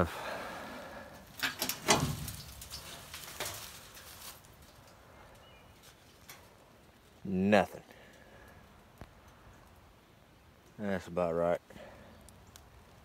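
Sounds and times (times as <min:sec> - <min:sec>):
tin sheet rattling and clattering: 0:01.3 - 0:04.7.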